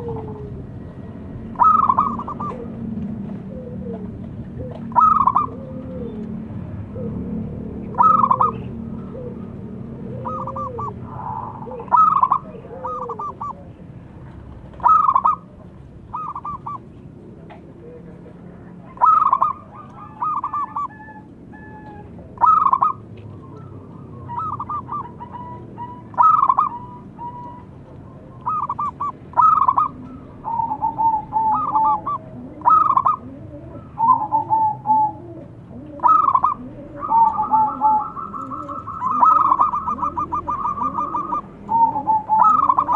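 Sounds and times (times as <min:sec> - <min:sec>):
doves cooing: 0:00.0 - 0:42.9.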